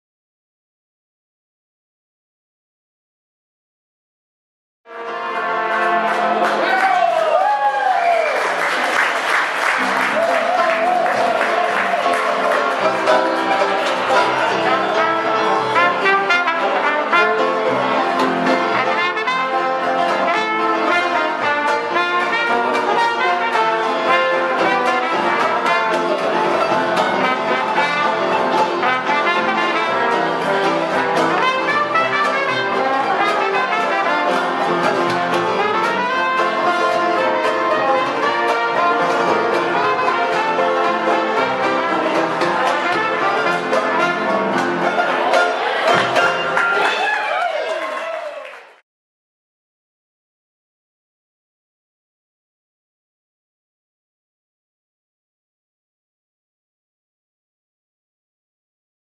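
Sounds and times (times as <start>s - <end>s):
trombone: 4.9s - 6.8s, 9.4s - 46.8s
banjo: 4.9s - 6.9s, 8.8s - 47.0s
piano: 4.9s - 46.9s
trumpet: 4.9s - 47.0s
upright bass: 9.8s - 46.6s.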